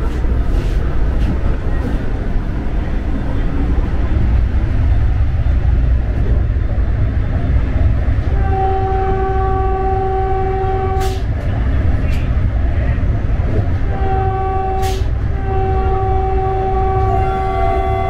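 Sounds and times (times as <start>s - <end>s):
train wheels rumbling on track: 0.0s - 18.0s
train horn: 8.3s - 11.2s, 13.8s - 18.0s.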